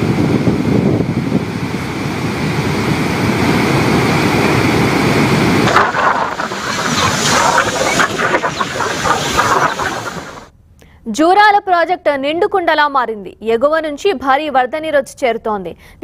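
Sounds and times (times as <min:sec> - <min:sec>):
water rushing through spillway: 0:04.8 - 0:10.5.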